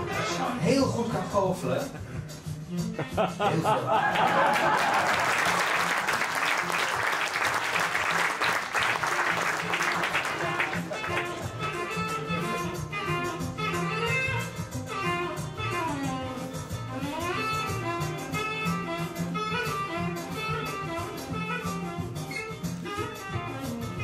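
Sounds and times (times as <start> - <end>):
instrumental music with guitar: 8.9 - 24.0.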